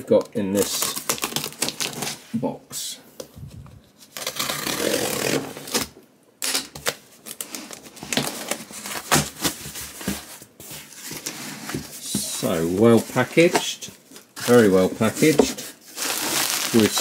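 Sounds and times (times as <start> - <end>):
tape tearing: 0.6 - 2.2, 4.1 - 9.6, 14.2 - 17.0.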